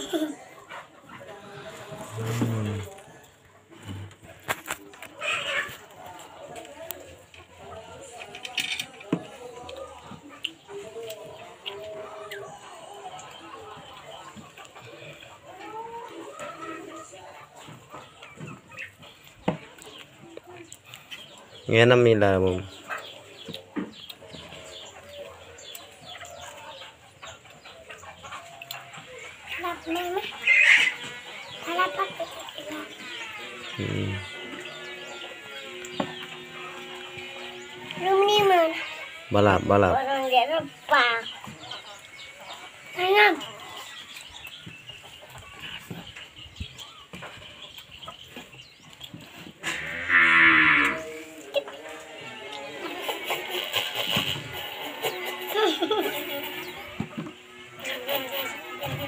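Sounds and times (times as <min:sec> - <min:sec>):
birds chirping: 0:00.0 - 0:59.0
chickens clucking: 0:00.0 - 0:59.0.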